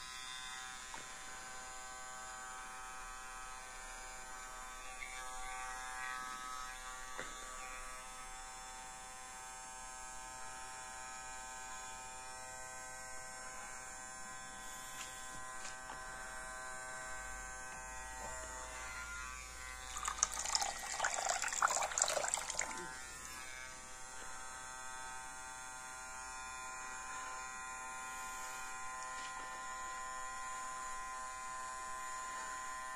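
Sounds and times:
small motor buzzing whine: 0:00.0 - 0:32.9
water splashing: 0:19.9 - 0:22.9.

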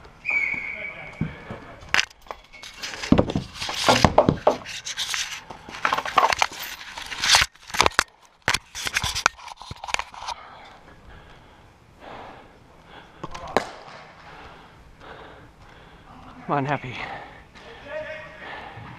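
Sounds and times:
camera rubbing against netting: 0:02.6 - 0:10.4.

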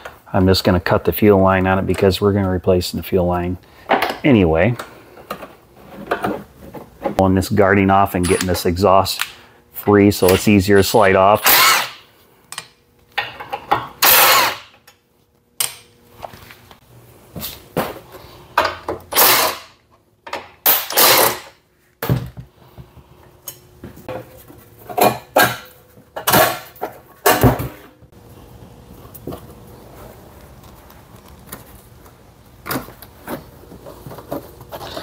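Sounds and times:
impact driver bursts: 0:11.4 - 0:12.0, 0:14.0 - 0:14.7, 0:19.1 - 0:19.7, 0:20.7 - 0:21.5.

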